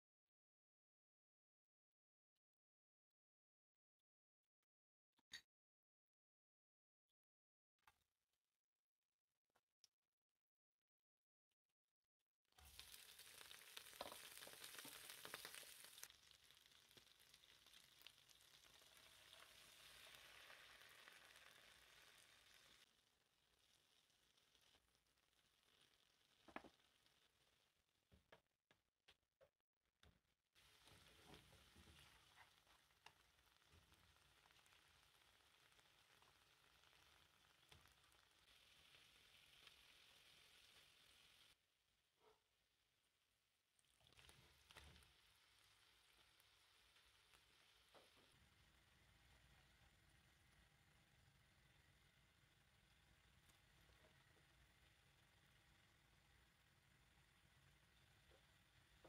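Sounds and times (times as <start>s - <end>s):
food sizzling and popping in oil: 12.5s - 28.4s, 30.6s - 41.6s, 43.7s - 59.0s.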